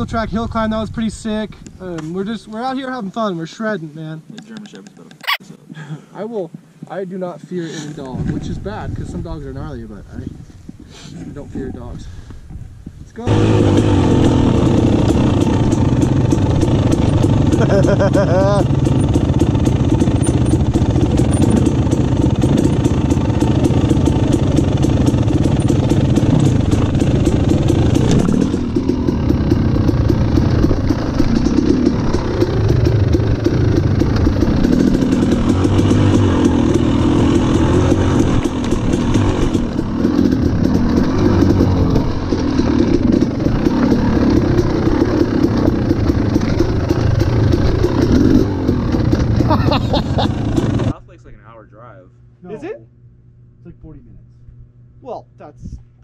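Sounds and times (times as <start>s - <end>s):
dirt bike engine revving: 13.2s - 51.0s.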